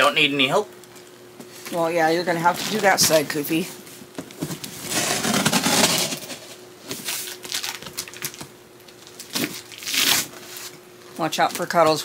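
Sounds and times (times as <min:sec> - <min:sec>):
knife slitting packing tape: 0:09.2 - 0:10.4.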